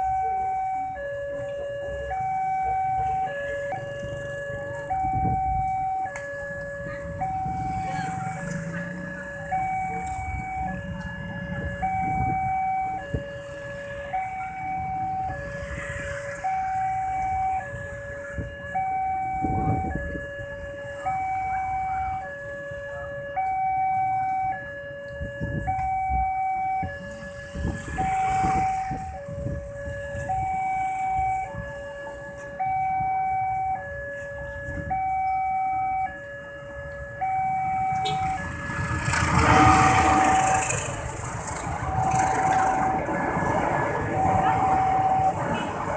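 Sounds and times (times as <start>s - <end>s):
level crossing two-tone alarm: 0.0s - 45.9s
motorcycle engines running: 6.8s - 12.3s, 37.9s - 43.5s.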